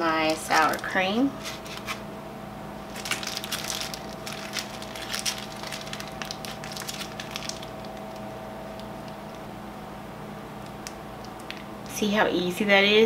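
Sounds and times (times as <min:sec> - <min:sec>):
low hum: 0:00.0 - 0:12.9
plastic bag crinkling: 0:00.1 - 0:02.0, 0:02.9 - 0:09.4.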